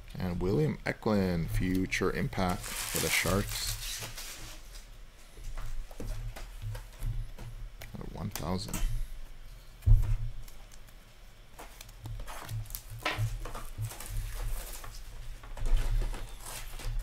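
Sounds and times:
trading cards tapping and rustling: 0:01.6 - 0:04.6, 0:05.5 - 0:09.0, 0:09.8 - 0:17.0.

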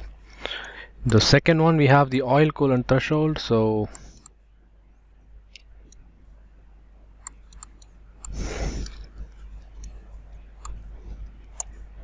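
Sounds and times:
computer mouse clicks: 0:07.2 - 0:11.8.

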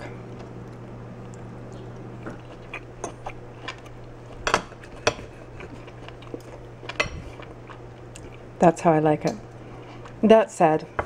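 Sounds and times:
low hum: 0:00.0 - 0:10.2.

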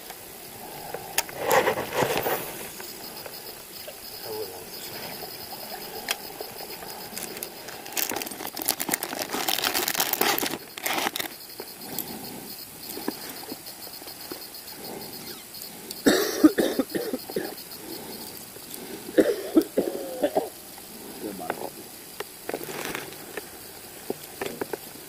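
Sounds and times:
crackling rustle near microphone: 0:00.0 - 0:15.8, 0:20.6 - 0:25.0
man coughing: 0:16.0 - 0:17.6, 0:19.2 - 0:20.6.

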